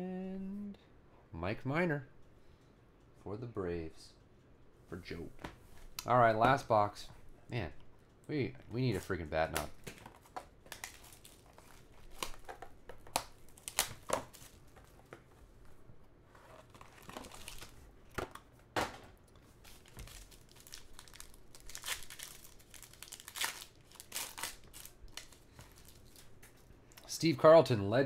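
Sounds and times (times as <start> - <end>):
plastic shrink-wrap crinkling: 9.9 - 15.0, 16.5 - 17.8, 19.5 - 26.7
foil wrapper crinkling and tearing: 10.3 - 14.9, 16.7 - 17.8, 19.6 - 26.6.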